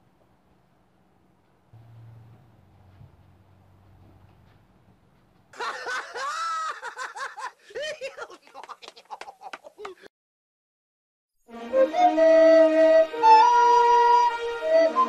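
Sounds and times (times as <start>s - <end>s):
high-pitched laughing and snickering: 5.6s - 10.1s.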